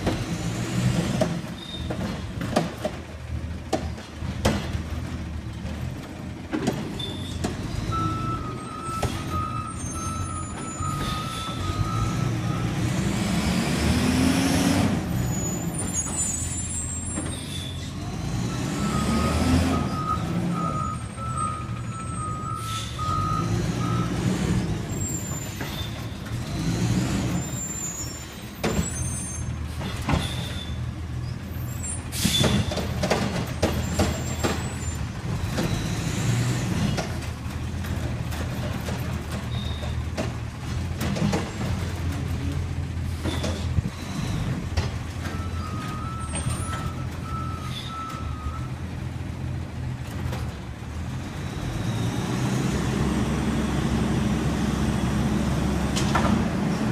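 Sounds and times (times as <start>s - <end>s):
garbage truck engine drone: 0.0s - 56.9s
reversing beeps: 7.9s - 12.8s, 18.5s - 24.2s, 45.3s - 48.8s
air brake hisses: 22.6s - 23.0s.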